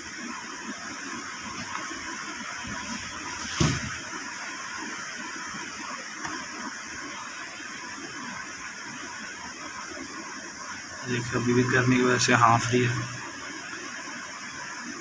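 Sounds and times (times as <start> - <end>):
steady hissing noise: 0.0 - 15.0
brief thump: 3.5 - 4.0.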